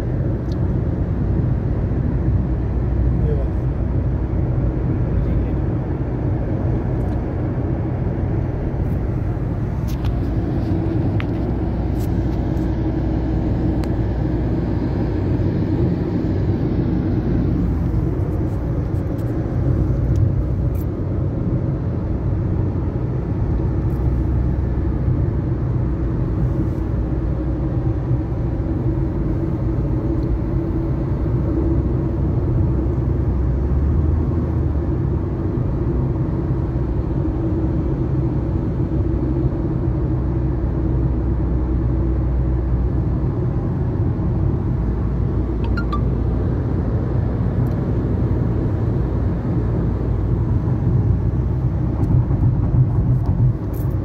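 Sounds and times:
car interior road rumble: 0:00.0 - 0:54.0.

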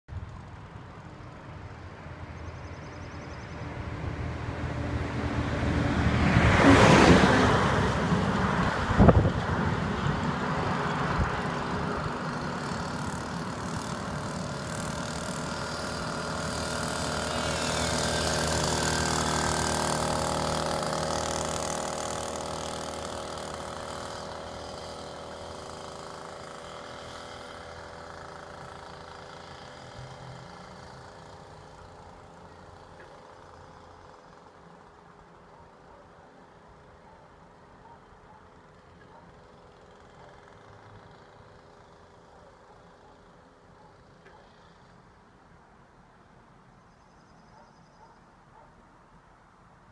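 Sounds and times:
car passing: 0:00.3 - 0:34.5
small two-stroke engine buzzing: 0:06.8 - 0:36.0, 0:38.5 - 0:45.1.

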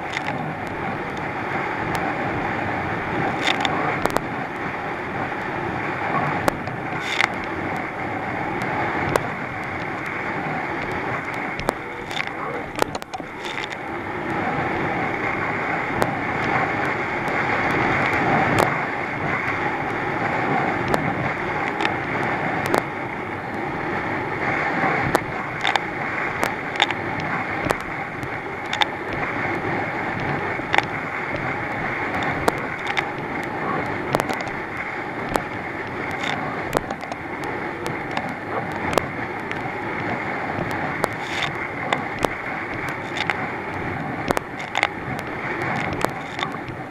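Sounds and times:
sharp ticks: 0:00.0 - 0:01.3, 0:03.3 - 0:04.3, 0:06.3 - 0:08.0, 0:08.6 - 0:10.2, 0:10.8 - 0:13.9, 0:22.6 - 0:22.9, 0:25.0 - 0:29.5, 0:30.2 - 0:46.9
boat engine: 0:00.0 - 0:46.9
water rushing: 0:00.0 - 0:46.9
wind rushing on microphone: 0:00.0 - 0:46.9.

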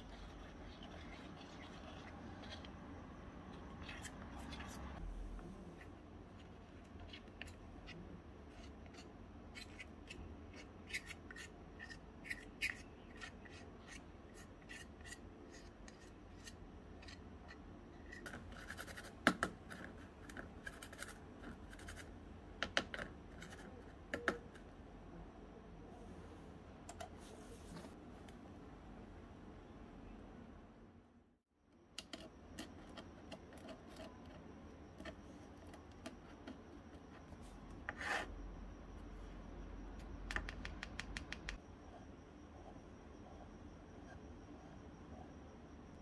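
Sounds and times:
spoon scraping batter: 0:00.0 - 0:05.0, 0:05.7 - 0:22.1.

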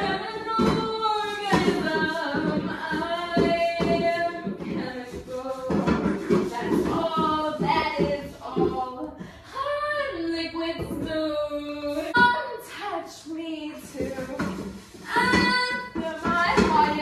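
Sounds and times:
woman singing unaccompanied: 0:00.0 - 0:17.0.

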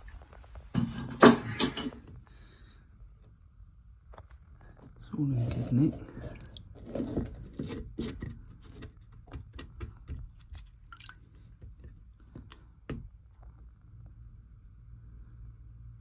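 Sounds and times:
low steady hum: 0:00.0 - 0:16.0
water dripping: 0:10.5 - 0:11.6.

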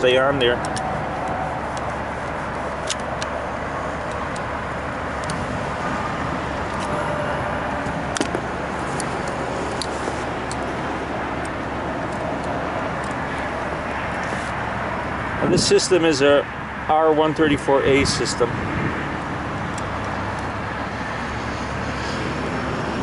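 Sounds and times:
steady rushing noise: 0:00.0 - 0:23.0
pliers and wire connectors clicking: 0:00.5 - 0:02.0, 0:02.8 - 0:03.4, 0:04.0 - 0:04.5, 0:05.2 - 0:05.5, 0:07.8 - 0:10.7, 0:11.4 - 0:13.5.

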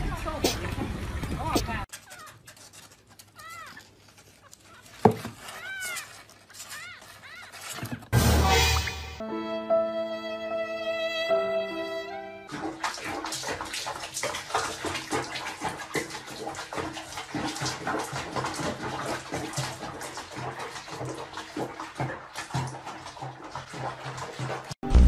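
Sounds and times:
water splashing in a basin: 0:00.0 - 0:01.9, 0:12.5 - 0:24.9.

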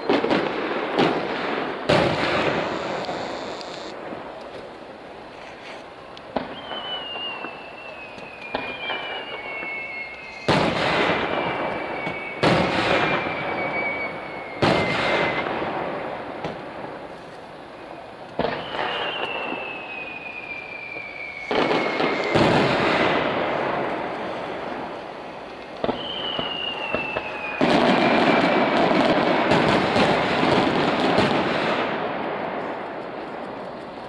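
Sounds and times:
firework shells bursting: 0:00.0 - 0:34.0
firework whistles sliding down: 0:02.2 - 0:04.0, 0:05.5 - 0:15.7, 0:17.8 - 0:30.0.

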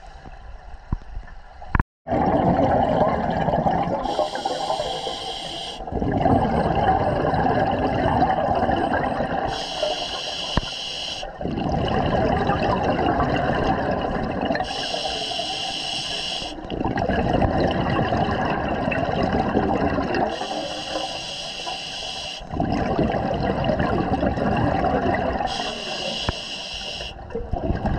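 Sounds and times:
bubbling exhaled air: 0:02.1 - 0:27.9
regulator hissing inhale: 0:04.0 - 0:05.9, 0:09.5 - 0:11.3, 0:14.6 - 0:16.6, 0:20.3 - 0:22.5, 0:25.5 - 0:27.2.

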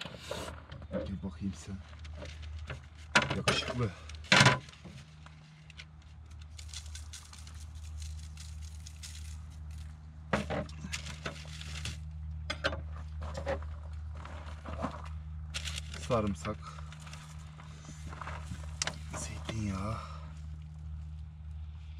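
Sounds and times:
steady low hum: 0:00.0 - 0:21.9
paper and foil crinkling: 0:01.8 - 0:10.0, 0:10.8 - 0:12.1, 0:15.5 - 0:19.9.

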